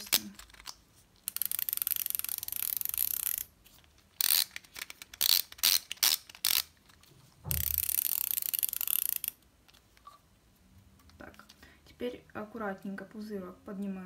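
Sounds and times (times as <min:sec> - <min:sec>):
insulin pen ratcheting clicks: 0:00.1 - 0:03.5, 0:04.2 - 0:06.7, 0:07.5 - 0:09.4.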